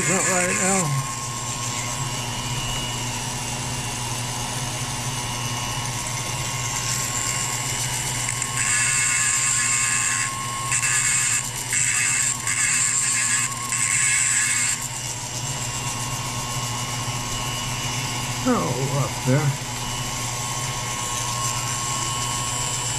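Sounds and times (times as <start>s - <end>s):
rotary tool grinding metal: 0.0s - 3.2s, 5.7s - 17.4s, 19.8s - 22.9s
rotary tool running: 0.0s - 22.9s.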